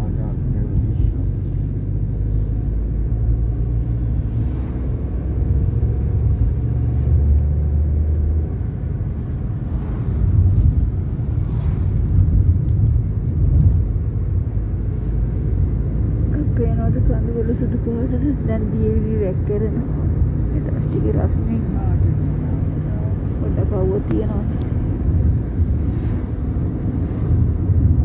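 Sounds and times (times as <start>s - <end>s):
car engine and tyre rumble: 0.0s - 28.0s.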